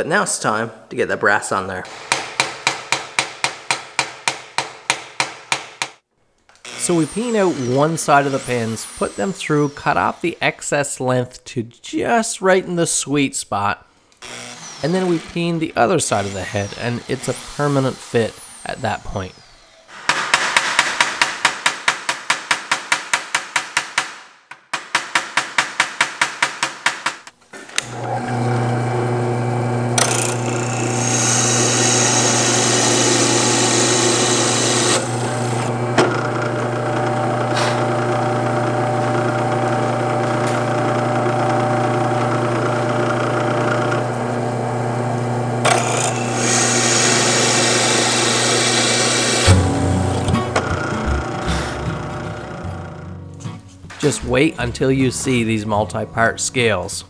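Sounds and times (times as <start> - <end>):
drill bit cutting scrape: 14.2 - 20.0, 30.0 - 35.7, 45.6 - 49.6
drill press motor running: 27.8 - 53.0.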